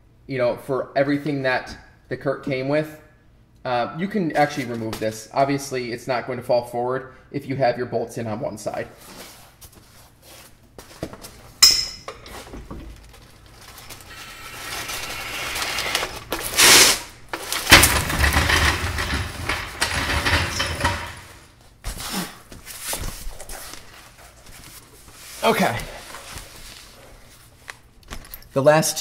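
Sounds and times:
rustling and scraping: 0:08.9 - 0:28.5
metal hardware clinking: 0:11.6 - 0:12.4.

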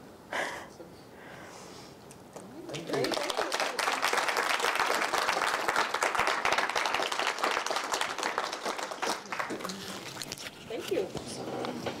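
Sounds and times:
audience applauding: 0:02.7 - 0:10.2.

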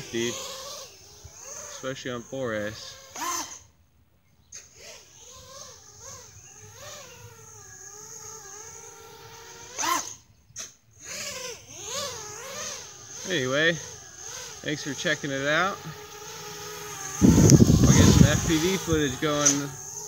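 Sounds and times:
drone motor whine: 0:00.0 - 0:03.8, 0:04.6 - 0:20.0.

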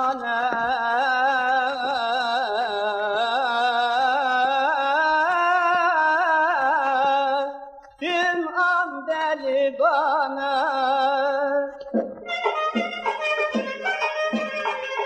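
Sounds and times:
man singing folk song with vibrato: 0:00.0 - 0:15.0
instrumental folk music: 0:11.0 - 0:15.0.

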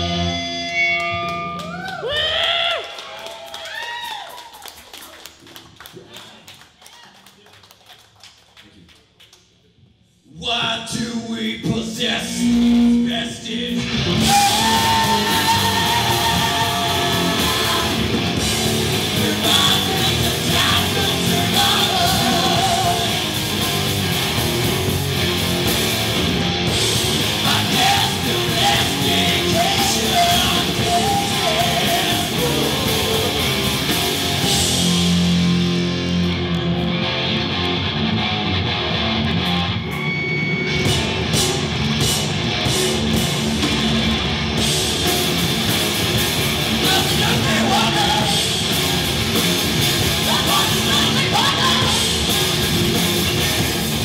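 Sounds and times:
rock band playing: 0:00.0 - 0:02.0, 0:11.6 - 0:54.0
woman singing: 0:14.3 - 0:18.1.

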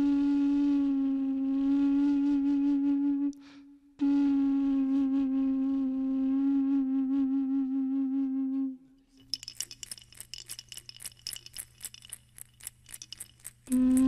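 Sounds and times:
ocarina low note: 0:04.0 - 0:08.9
rattle shaken: 0:09.1 - 0:14.0.

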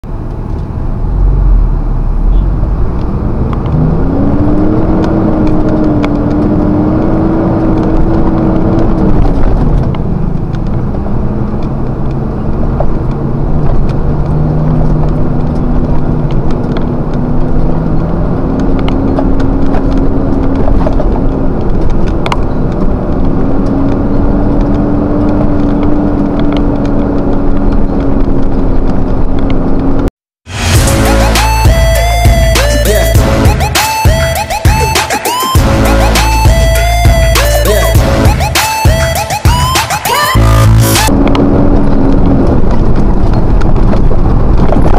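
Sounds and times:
vehicle engine droning: 0:00.0 - 0:39.7, 0:40.3 - 0:44.9.

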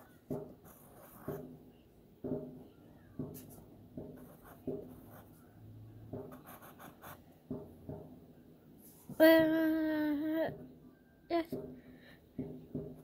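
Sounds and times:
pencil scratching on paper: 0:00.0 - 0:01.5, 0:03.3 - 0:05.5, 0:06.2 - 0:07.2.

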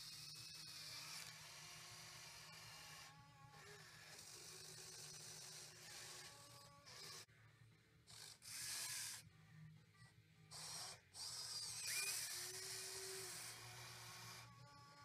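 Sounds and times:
small motor whine: 0:00.0 - 0:07.3, 0:08.1 - 0:09.4, 0:10.0 - 0:15.0.

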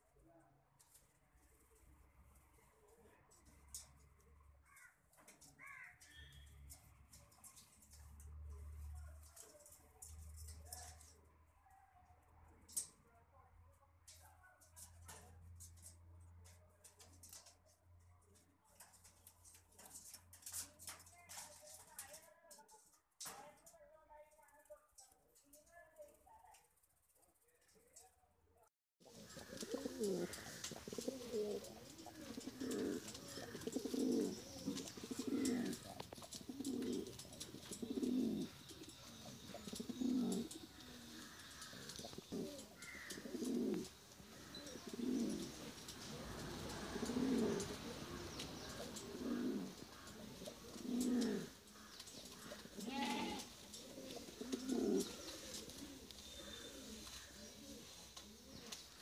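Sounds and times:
pigeons cooing: 0:29.1 - 0:59.0.

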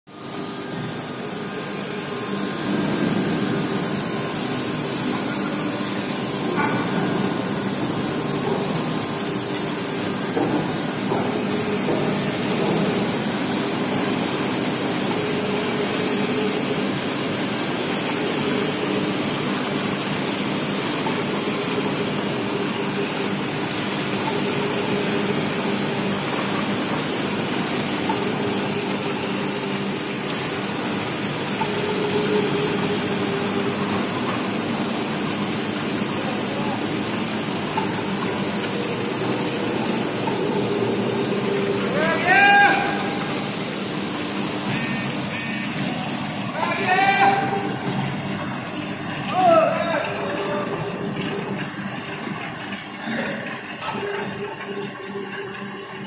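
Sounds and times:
continuous loud hiss: 0:32.7 - 0:47.9.

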